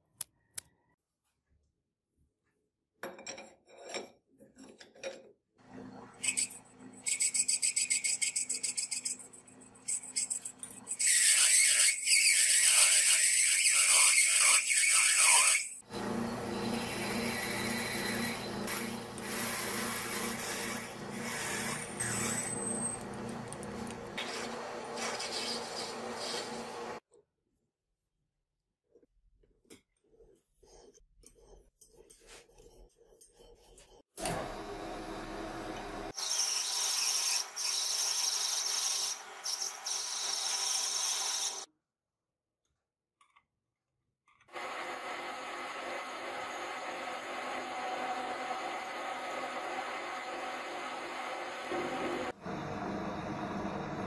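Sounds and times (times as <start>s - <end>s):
drill bit scraping metal: 6.2s - 27.0s
lathe motor hum: 15.9s - 25.0s, 34.2s - 36.1s, 44.6s - 54.0s
lathe knurling metal: 15.9s - 27.0s.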